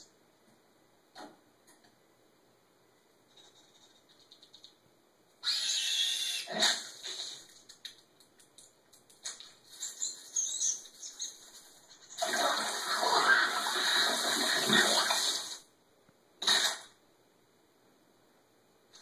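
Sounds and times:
cartoon liquid gushing and splashing: 12.1s - 15.6s.

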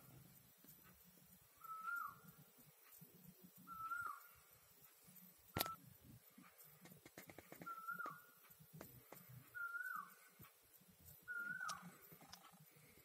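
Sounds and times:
faint whistle-like call: 1.6s - 2.3s, 3.6s - 4.3s, 7.6s - 8.4s, 9.5s - 10.2s, 11.2s - 12.4s
sharp click: 5.6s - 5.8s.

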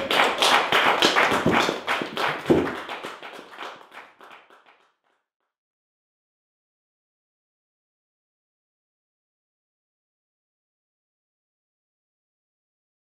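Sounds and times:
small audience applauding: 0.0s - 5.2s.

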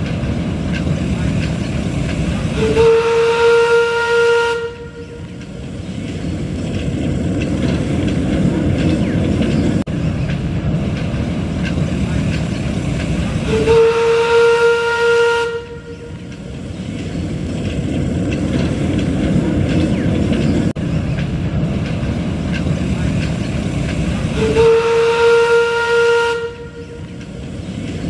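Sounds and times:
locomotive running along track: 0.0s - 28.0s
steam locomotive whistle: 2.5s - 5.3s, 13.4s - 16.2s, 24.4s - 27.1s.

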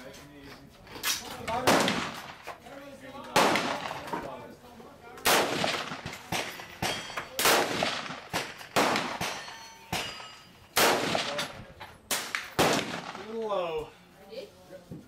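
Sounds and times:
rifle shots: 1.5s - 2.4s, 3.3s - 4.1s, 5.2s - 10.2s, 10.8s - 13.4s
fainter sharp gunshots: 1.6s - 2.4s, 3.4s - 4.0s, 5.2s - 6.5s, 7.4s - 9.4s, 10.8s - 11.5s, 12.1s - 13.4s.

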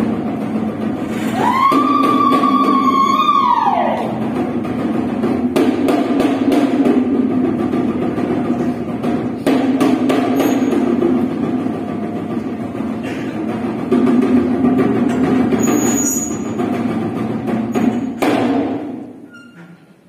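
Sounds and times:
sharp percussive knocks: 4.2s - 19.1s.

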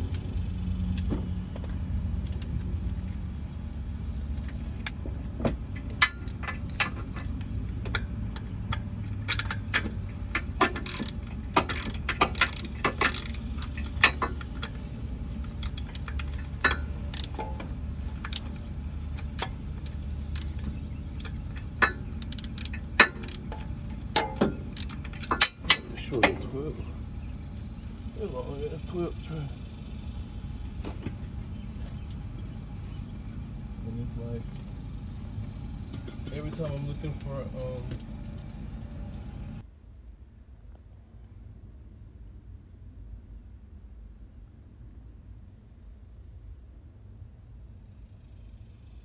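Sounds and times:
steady low hum: 0.0s - 49.0s
ratchet and metal parts clicking: 5.7s - 14.8s, 15.4s - 26.6s.

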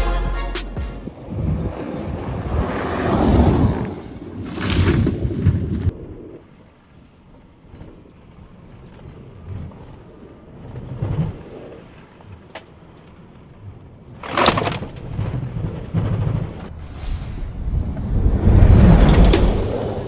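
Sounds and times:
tyre road noise rumble: 1.1s - 6.0s, 14.1s - 20.0s.

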